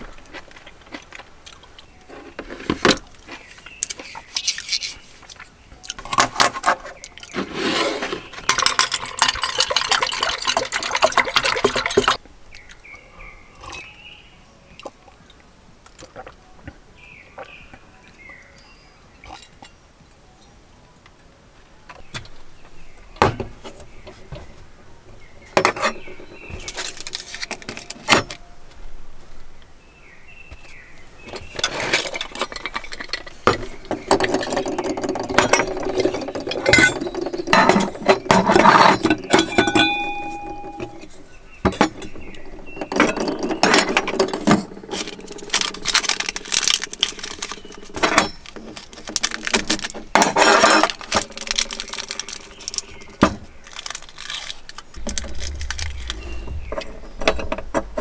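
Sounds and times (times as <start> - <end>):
metal cookware clinking and scraping: 8.0 - 12.2, 35.5 - 41.2.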